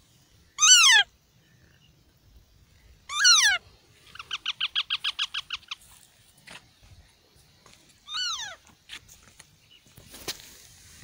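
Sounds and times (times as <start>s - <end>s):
parakeet chicks calling: 0.6s - 1.1s, 3.0s - 5.8s, 8.0s - 8.6s.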